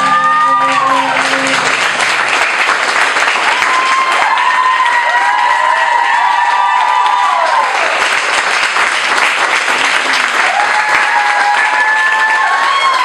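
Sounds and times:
people whooping: 0.0 - 1.8, 3.3 - 8.1, 10.4 - 13.0
audience applauding: 0.0 - 13.0.

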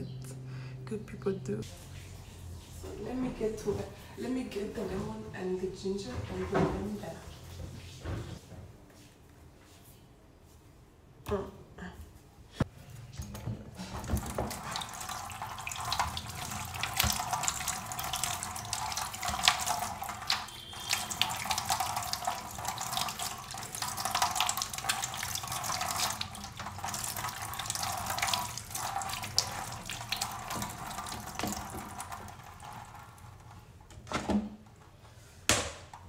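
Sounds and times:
tap water splashing in sink: 13.2 - 34.6.

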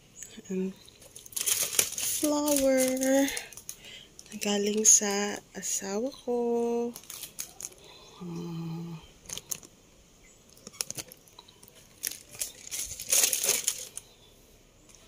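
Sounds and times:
cellophane rustling: 0.8 - 5.0, 6.9 - 7.9, 9.2 - 9.8, 10.6 - 14.2
person humming: 8.1 - 9.1.

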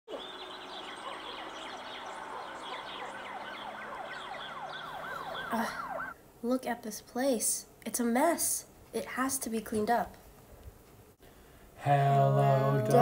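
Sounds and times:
faint sweeping siren tones: 0.1 - 6.2
siren yelping: 0.1 - 6.2.

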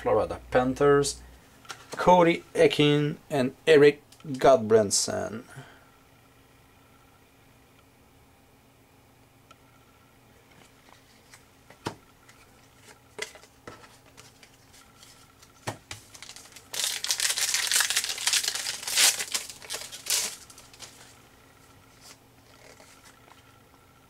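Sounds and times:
wrapper tearing and crinkling: 16.0 - 21.2.

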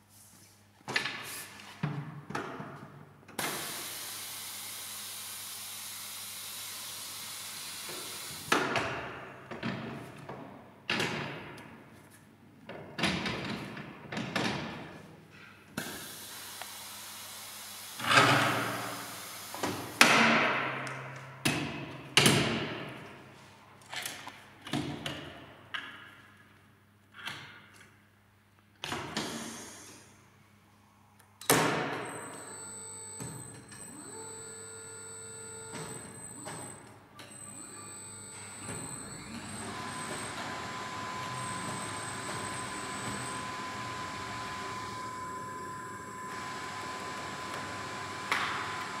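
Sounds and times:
compressed air hissing: 3.4 - 4.5.

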